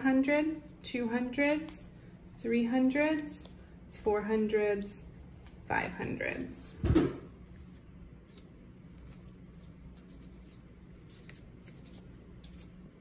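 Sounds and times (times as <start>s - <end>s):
low steady hum: 0.0s - 13.0s
paper cutouts rustling: 7.4s - 12.9s.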